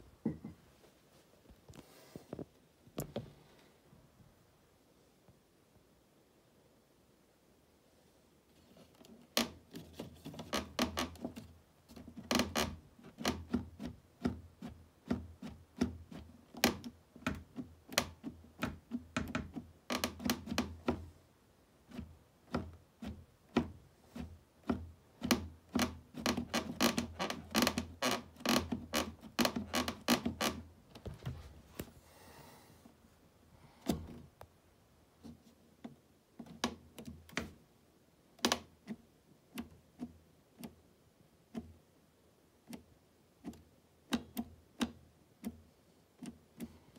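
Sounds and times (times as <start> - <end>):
boot cuff clicking and knocking: 9.0 - 21.1, 21.9 - 31.4, 42.7 - 46.8.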